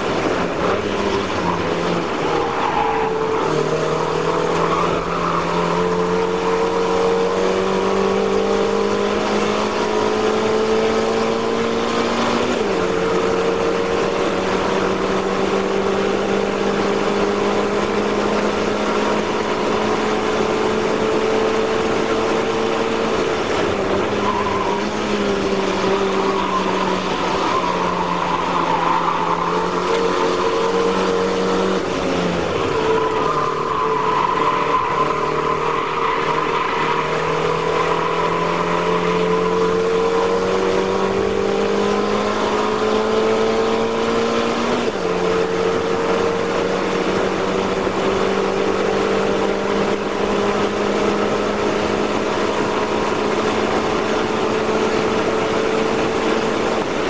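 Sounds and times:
race car engine at high revs: 0:00.0 - 0:57.0
wind and road noise: 0:00.0 - 0:57.0.

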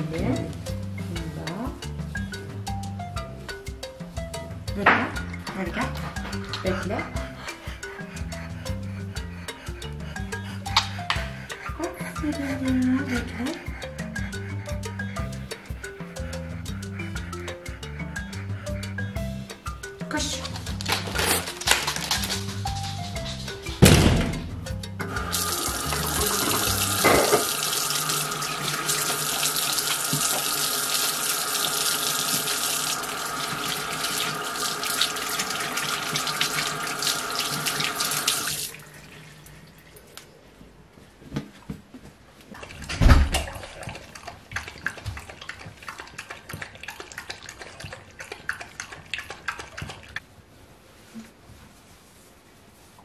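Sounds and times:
dull thump: 0:23.8 - 0:24.6
tap water splashing into basin: 0:25.6 - 0:30.7
faint handling sounds: 0:50.3 - 0:53.0.

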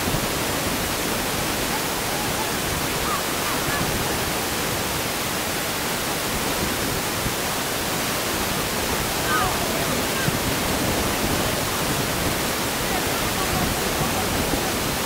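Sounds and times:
wind noise on microphone: 0:00.0 - 0:15.0
faint distant calls: 0:01.6 - 0:04.6.

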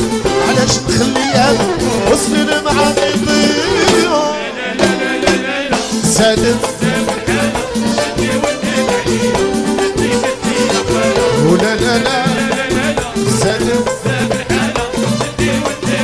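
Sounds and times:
ornamented melody line: 0:00.0 - 0:04.4
hand percussion: 0:00.0 - 0:16.0.

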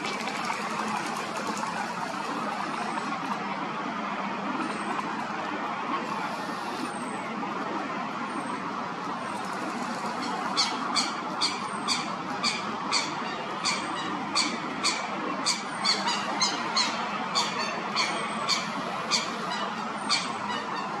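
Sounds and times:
steady background noise: 0:00.0 - 0:21.0
chick peeping calls: 0:10.4 - 0:21.0.

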